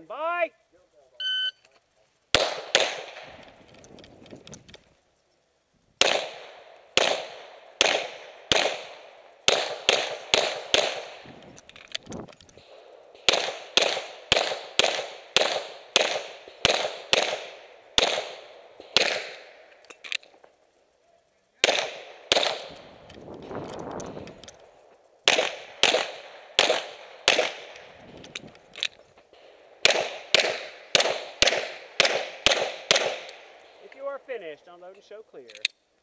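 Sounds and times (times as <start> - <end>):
pistol shots: 2.3 - 3.9, 6.0 - 11.5, 12.6 - 20.3, 21.6 - 24.6, 25.2 - 34.0.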